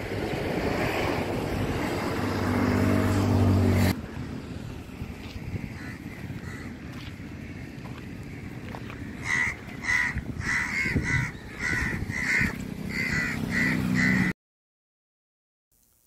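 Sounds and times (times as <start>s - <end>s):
crow cawing: 5.6s - 7.6s, 8.3s - 14.3s.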